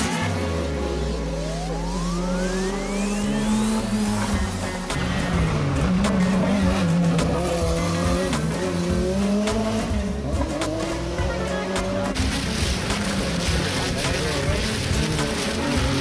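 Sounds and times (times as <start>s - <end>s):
background music: 0.0s - 16.0s
race car engine revving: 0.0s - 16.0s.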